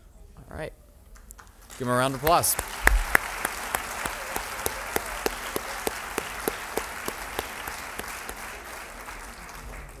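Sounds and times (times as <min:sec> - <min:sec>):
audience applauding: 0:01.4 - 0:10.0
single person clapping: 0:02.3 - 0:10.0.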